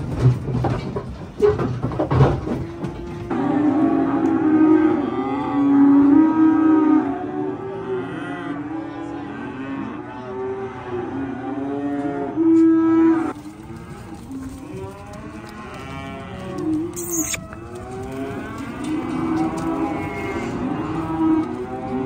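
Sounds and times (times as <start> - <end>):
calves bawling: 13.3 - 22.0.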